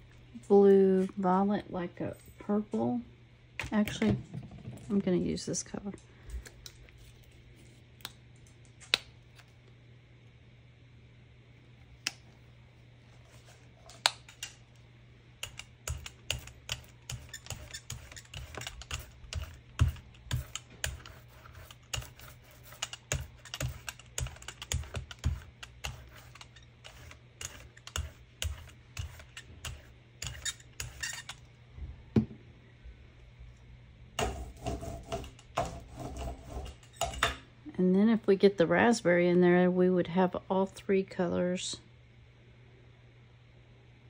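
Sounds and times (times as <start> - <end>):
art supplies clicking and tapping: 15.4 - 31.3.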